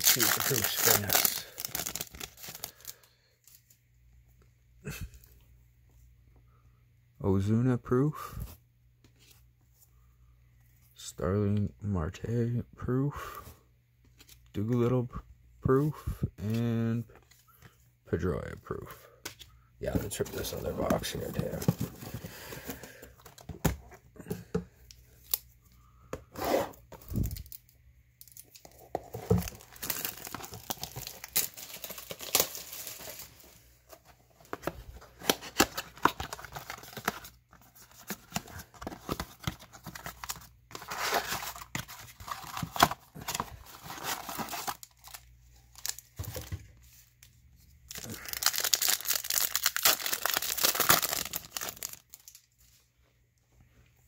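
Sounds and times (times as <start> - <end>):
foil wrappers tearing: 0.0 - 3.0, 47.9 - 52.4.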